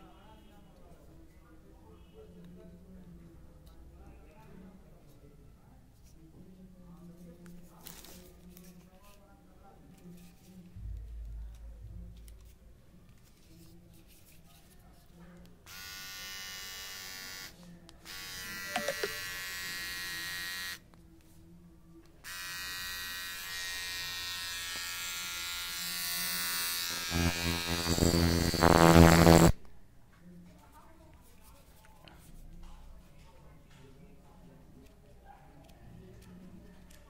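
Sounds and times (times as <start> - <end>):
beard trimmer electric buzz: 15.7 - 17.5, 18.1 - 20.8, 22.3 - 29.6.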